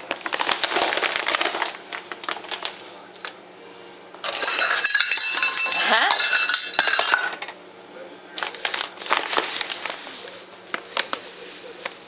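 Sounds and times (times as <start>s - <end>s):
metal bowls clinking: 4.2s - 7.6s.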